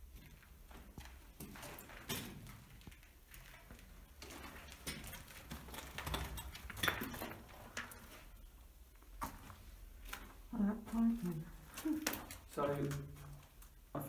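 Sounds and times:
small clinks and knocks: 0.2 - 8.3.

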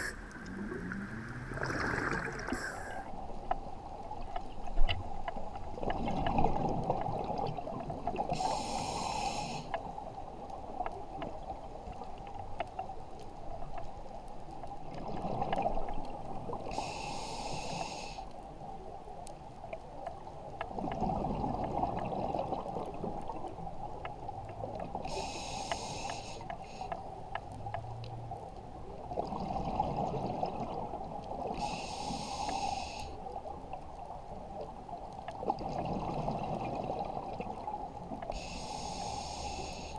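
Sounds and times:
exhaled bubbles rumbling underwater: 0.0 - 8.7, 14.8 - 16.9, 18.6 - 25.4, 27.5 - 31.9, 33.2 - 39.7
regulator hiss: 8.4 - 9.7, 16.8 - 18.2, 25.1 - 26.9, 31.6 - 33.1, 38.3 - 39.9.

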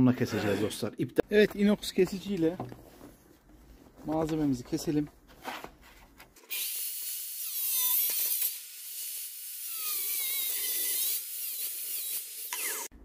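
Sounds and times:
grinder disc cutting plastic: 0.2 - 0.9, 6.4 - 12.9.

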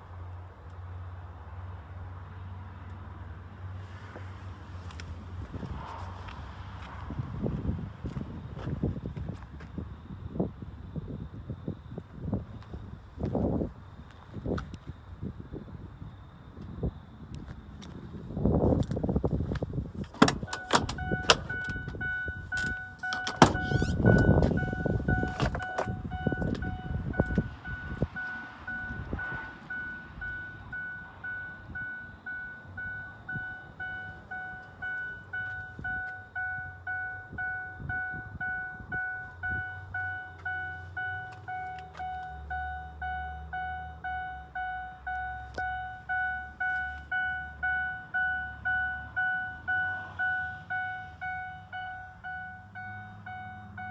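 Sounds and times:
car door thumps: 20.1 - 21.8, 22.6 - 24.6.

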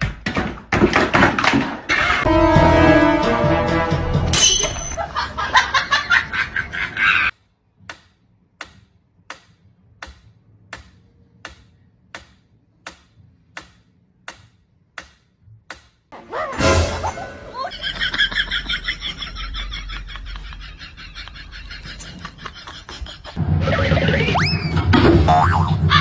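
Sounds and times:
background music: 2.3 - 5.0, 16.2 - 17.6.

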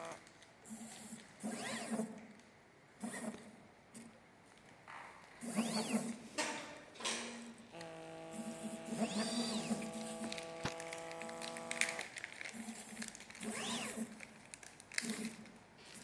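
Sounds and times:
stepper motors whining: 5.4 - 6.1, 7.8 - 12.0, 13.4 - 14.1
steady machine hum: 7.5 - 13.0.

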